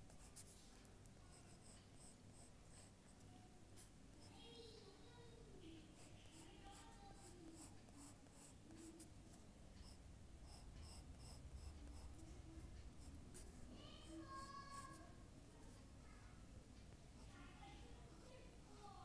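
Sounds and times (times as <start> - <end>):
drawing tool scratching paper: 1.3 - 3.0, 5.9 - 9.1, 9.8 - 12.2.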